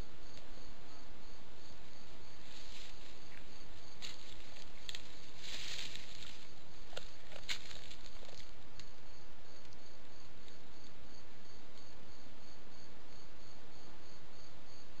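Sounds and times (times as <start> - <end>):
steady hiss: 0.0 - 11.2
rustling in dry leaves: 2.4 - 8.9.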